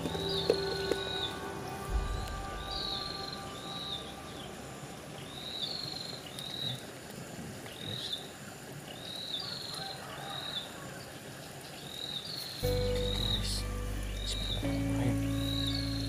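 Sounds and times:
bird chirping: 0:00.0 - 0:07.0, 0:11.7 - 0:16.0
outdoor hiss: 0:00.0 - 0:16.0.

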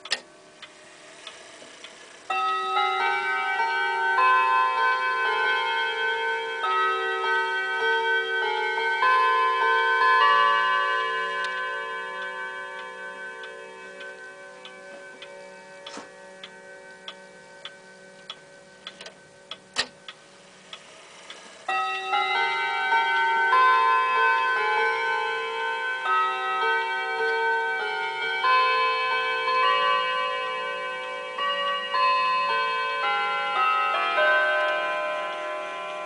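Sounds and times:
clock ticking: 0:00.0 - 0:03.6, 0:09.6 - 0:23.2
wall clock chime melody: 0:00.0 - 0:36.0.

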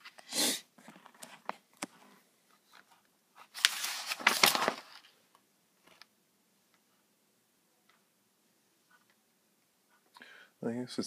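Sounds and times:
paper rustling: 0:00.9 - 0:05.2.

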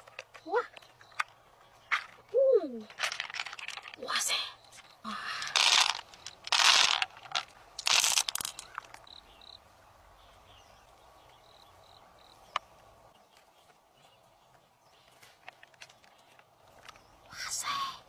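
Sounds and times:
rustling handling noise: 0:00.0 - 0:04.1, 0:05.4 - 0:09.1.

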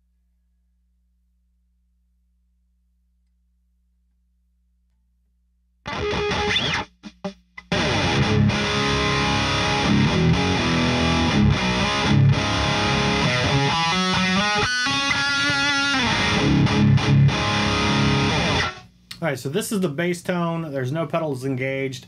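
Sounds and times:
distorted electric guitar riff: 0:05.8 - 0:18.9.

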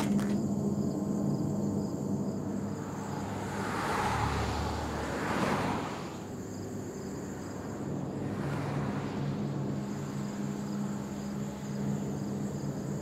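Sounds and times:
vehicle passing by: 0:02.7 - 0:06.4, 0:07.1 - 0:11.8.

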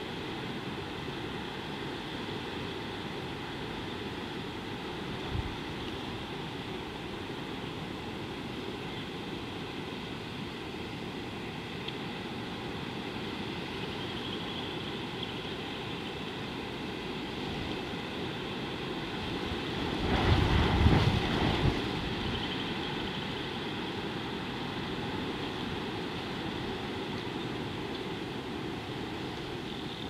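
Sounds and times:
outdoor background hiss: 0:00.0 - 0:30.0
wind buffeting microphone: 0:19.4 - 0:22.5.

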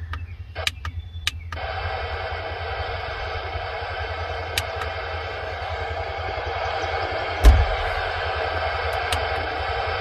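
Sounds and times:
low steady hum: 0:00.0 - 0:10.0
radio static hiss: 0:00.0 - 0:10.0.

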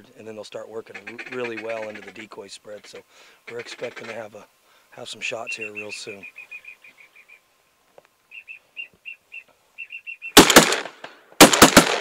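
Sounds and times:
shotgun fire: 0:10.4 - 0:12.0.

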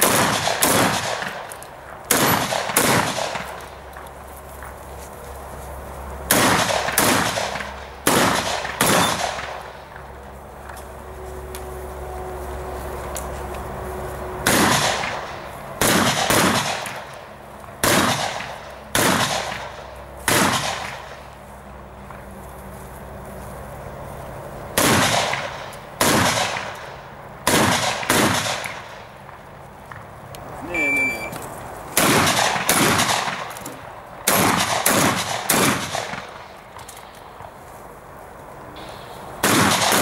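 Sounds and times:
shotgun shots: 0:00.0 - 0:01.5, 0:02.1 - 0:03.6, 0:06.3 - 0:09.8, 0:14.4 - 0:17.1, 0:17.8 - 0:21.2, 0:24.8 - 0:26.8, 0:27.4 - 0:29.1, 0:32.0 - 0:33.6, 0:34.2 - 0:36.5, 0:39.4 - 0:40.0.

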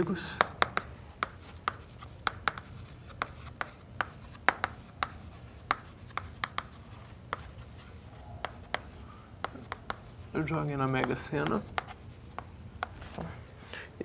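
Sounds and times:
chalk tapping and scratching on board: 0:00.1 - 0:13.3.

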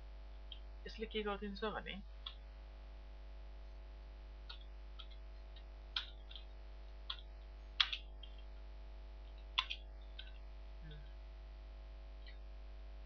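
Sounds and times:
low mains hum: 0:00.0 - 0:13.0
keyboard key clicks: 0:07.8 - 0:08.0, 0:09.6 - 0:10.4.

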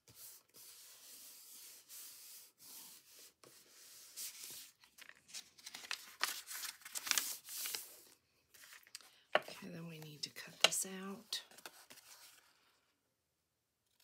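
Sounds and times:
paper sliding and rubbing: 0:00.0 - 0:08.9, 0:11.5 - 0:12.8
book page turning: 0:04.2 - 0:09.6, 0:10.6 - 0:12.8.

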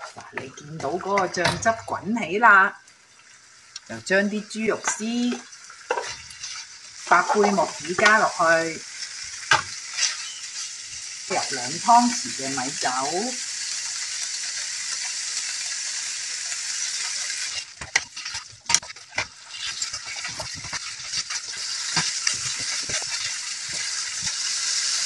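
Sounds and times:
wooden spatula scraping wok: 0:00.0 - 0:01.9, 0:04.7 - 0:08.6, 0:09.3 - 0:12.6, 0:16.8 - 0:25.0
food sizzling in a wok: 0:00.0 - 0:25.0.

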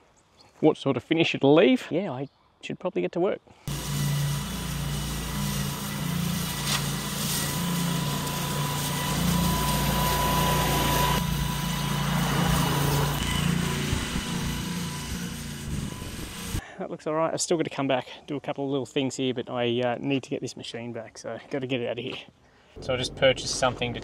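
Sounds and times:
faint high whine: 0:03.7 - 0:16.6
mower engine running under load: 0:03.7 - 0:16.6.

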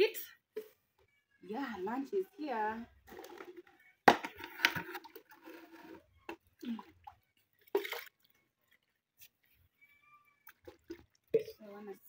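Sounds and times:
plastic cups and pots knocking: 0:03.1 - 0:06.8
liquid splashing: 0:06.6 - 0:08.9, 0:10.4 - 0:11.6.

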